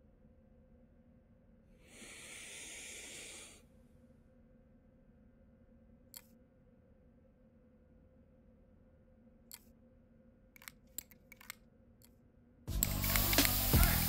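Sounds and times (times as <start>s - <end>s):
faint steady hum: 0.0s - 14.0s
sharp click: 6.1s - 6.4s, 9.5s - 9.8s, 10.6s - 11.6s, 12.8s - 13.7s
spray paint can hissing: 12.7s - 14.0s.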